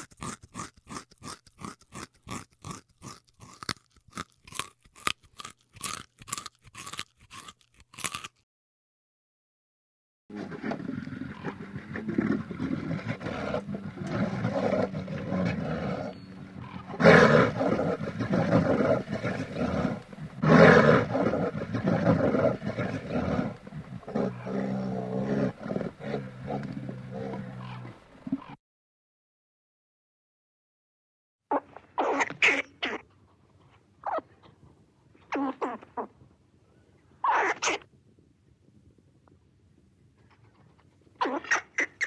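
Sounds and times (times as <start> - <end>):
bear cubs nursing hum: 10.7 - 28.6.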